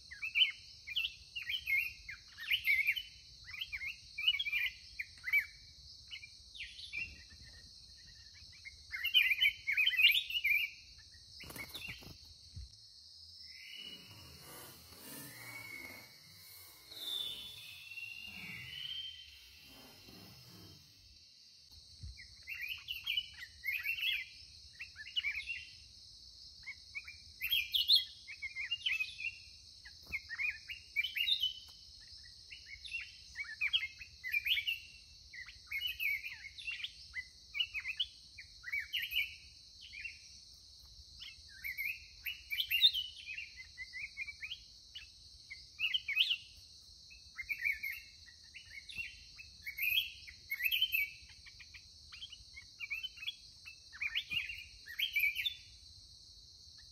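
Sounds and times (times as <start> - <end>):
steady high hiss: 12.2 - 21.8
bulbuls chirping: 13.4 - 21.0.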